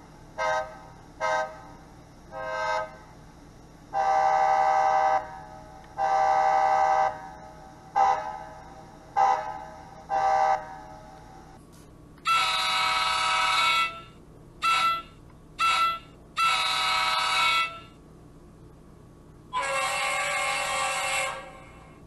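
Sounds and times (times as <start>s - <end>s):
air horn blasts from small speaker: 4.0s - 5.3s, 6.0s - 7.2s, 12.3s - 18.0s, 19.6s - 21.7s.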